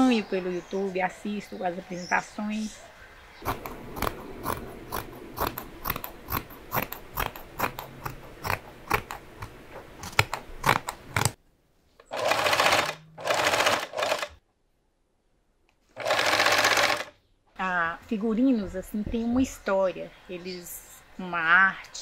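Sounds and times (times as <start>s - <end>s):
sewing machine stitching: 12.1s - 14.4s, 16.0s - 17.1s.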